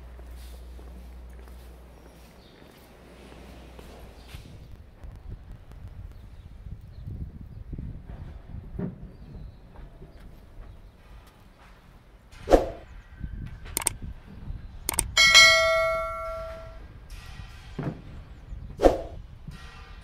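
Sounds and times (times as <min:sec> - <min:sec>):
bell ringing: 0:14.9 - 0:16.8.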